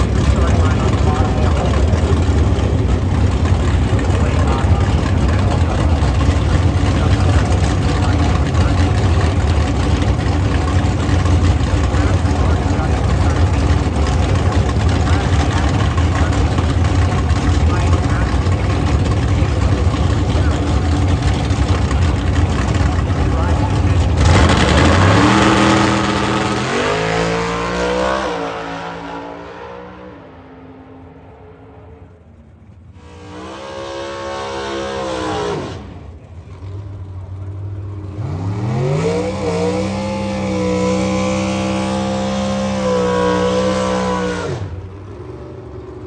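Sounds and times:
drag car engine idling: 0.0s - 26.7s, 32.0s - 33.4s, 35.3s - 38.2s, 44.7s - 46.0s.

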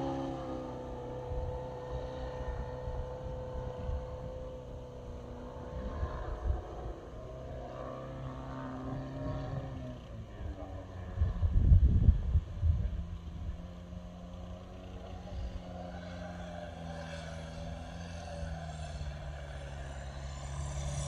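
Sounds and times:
model plane engine droning: 0.0s - 21.0s.

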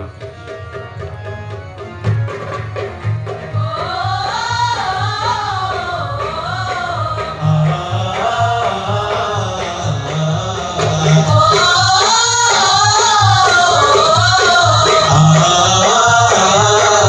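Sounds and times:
steady percussion beat: 0.0s - 17.0s
group singing: 3.5s - 17.0s.

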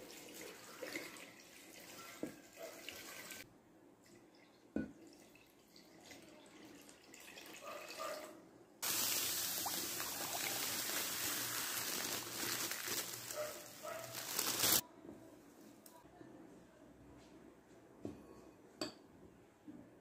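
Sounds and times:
water poured into a pot: 0.0s - 3.4s, 4.0s - 8.0s, 8.8s - 14.8s
sugar poured into a pot: 8.8s - 14.8s.

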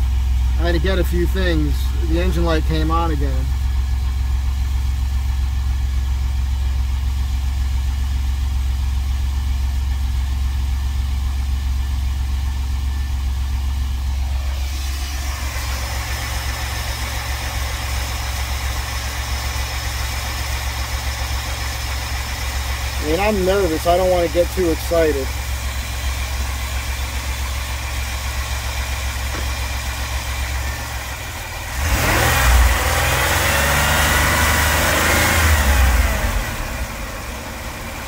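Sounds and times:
car engine idling: 0.0s - 38.0s
engine hiss: 14.2s - 33.2s.

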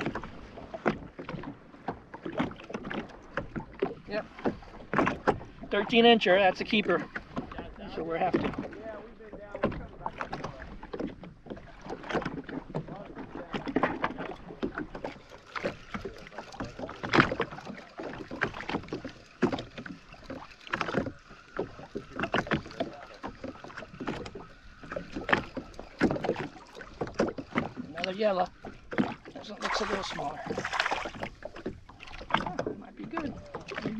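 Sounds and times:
water slapping against hull: 0.0s - 33.9s
fish splashing at surface: 28.9s - 32.7s.

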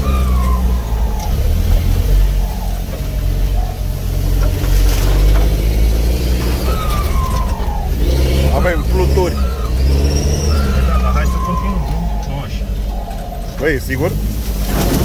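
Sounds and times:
engine running at low revs: 0.0s - 15.0s
short falling squeal: 5.8s - 13.6s.

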